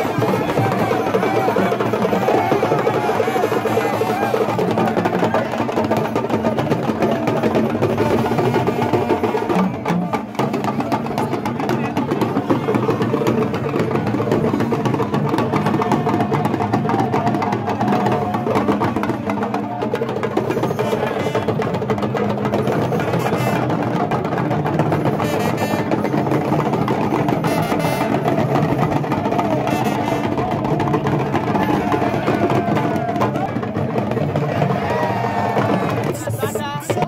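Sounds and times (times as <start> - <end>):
talking drum ensemble playing: 0.0 - 37.0.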